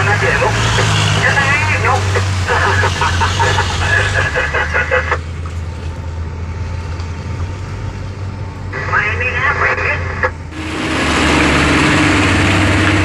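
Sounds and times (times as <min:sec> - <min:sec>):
people talking: 0:00.0 - 0:05.2, 0:08.8 - 0:10.4
diesel truck engine droning: 0:00.0 - 0:13.0.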